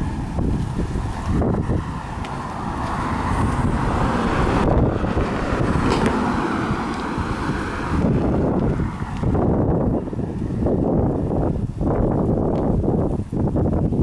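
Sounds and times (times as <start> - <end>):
car driving past: 0.0 - 10.9
wind on microphone: 0.0 - 14.0.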